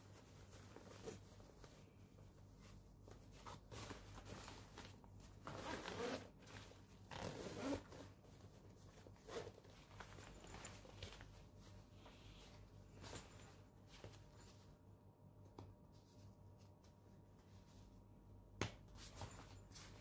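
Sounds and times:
backpack zipper rasping: 0:05.4 - 0:06.3, 0:07.1 - 0:08.1.

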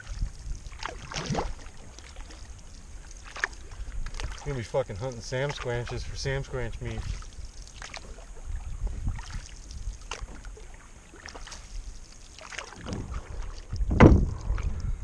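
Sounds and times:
wind rumble on microphone: 0:00.0 - 0:10.6, 0:12.8 - 0:15.0
paddle dipping in water: 0:00.0 - 0:15.0
loud thump: 0:13.9 - 0:14.4.

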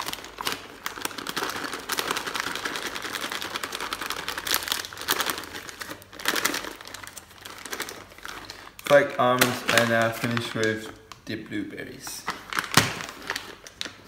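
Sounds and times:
plastic packet rustling: 0:00.0 - 0:14.0.

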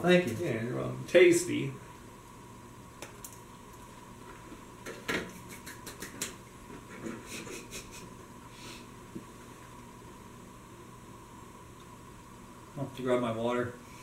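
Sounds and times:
steady faint hum: 0:00.0 - 0:14.0
people chewing cookies: 0:05.3 - 0:08.2.

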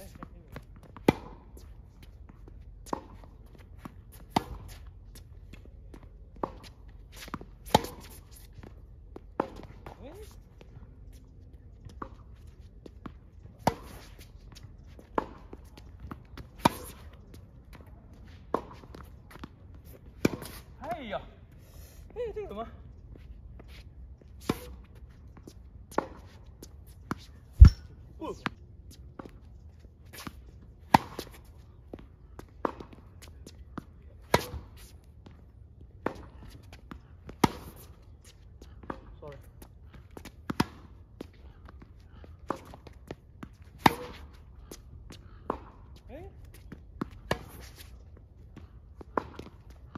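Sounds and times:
racket hitting tennis ball: 0:00.8 - 0:04.9, 0:06.3 - 0:08.5, 0:09.2 - 0:10.0, 0:13.0 - 0:14.3, 0:15.0 - 0:17.2, 0:17.8 - 0:20.8, 0:24.4 - 0:24.9, 0:25.9 - 0:28.2, 0:30.1 - 0:31.6, 0:32.5 - 0:34.9, 0:36.0 - 0:39.2, 0:40.0 - 0:41.8, 0:42.4 - 0:46.0, 0:46.6 - 0:49.9
tennis racket striking ball: 0:27.1 - 0:27.9, 0:43.7 - 0:44.4
ball bouncing: 0:27.6 - 0:28.5.

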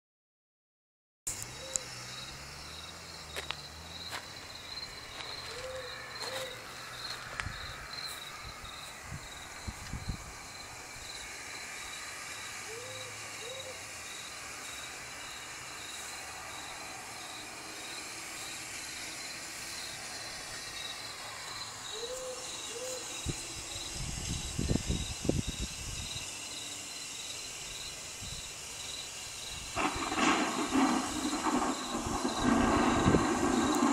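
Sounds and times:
crickets chirping: 0:01.3 - 0:33.9
owl hooting: 0:01.6 - 0:01.9, 0:05.4 - 0:06.7, 0:12.7 - 0:13.9, 0:21.8 - 0:23.3.

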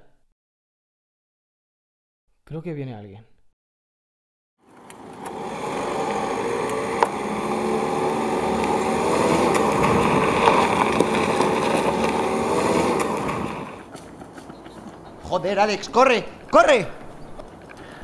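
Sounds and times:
van engine running: 0:04.6 - 0:15.4
tyres crunching over gravel: 0:04.7 - 0:18.0.

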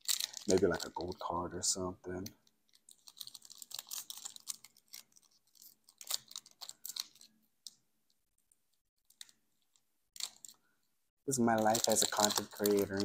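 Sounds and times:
foil wrapper tearing and crinkling: 0:00.0 - 0:01.4, 0:02.7 - 0:07.4, 0:10.2 - 0:10.6, 0:11.3 - 0:13.0.

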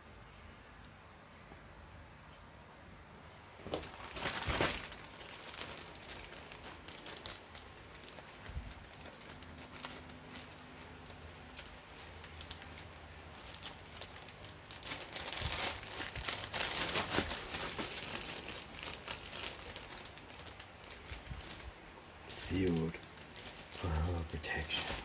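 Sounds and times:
plastic bag crinkling: 0:03.6 - 0:25.0.

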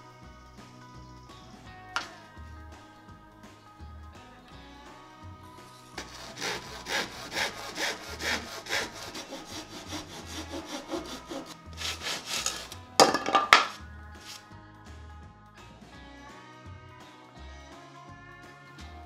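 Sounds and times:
hand saw rasping through wood: 0:06.0 - 0:12.8
wood cracking: 0:06.0 - 0:13.8.

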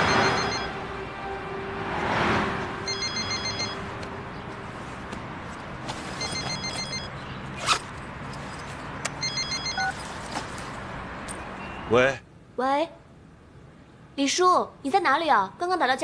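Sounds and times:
mobile phone ringing trills: 0:00.0 - 0:01.4, 0:02.8 - 0:04.0, 0:06.2 - 0:07.2, 0:09.2 - 0:10.0
car passing: 0:00.0 - 0:11.6.

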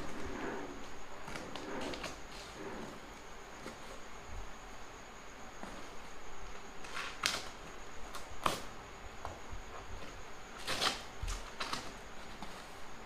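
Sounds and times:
packing tape being cut: 0:10.6 - 0:11.9.

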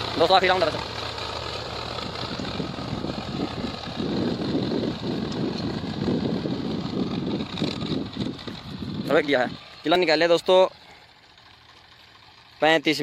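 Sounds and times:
tractor engine running: 0:00.0 - 0:13.0
wind buffeting microphone: 0:02.0 - 0:09.7.

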